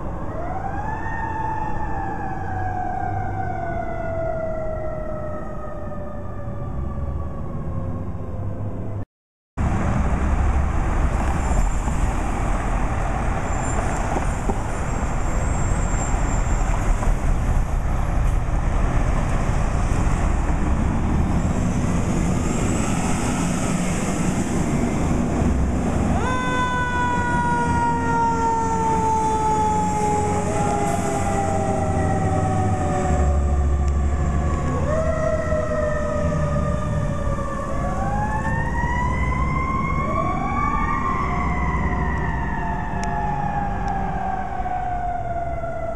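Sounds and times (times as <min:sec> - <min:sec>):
fire truck sirens wailing: 0:00.0 - 0:08.8, 0:12.4 - 0:45.9
street traffic: 0:00.0 - 0:09.0, 0:09.6 - 0:45.9
engine noise: 0:09.6 - 0:45.9.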